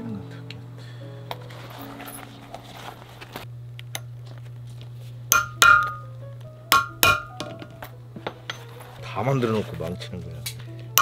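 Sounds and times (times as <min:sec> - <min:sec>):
hammer striking metal with ring: 0:05.3 - 0:06.1, 0:06.7 - 0:07.7.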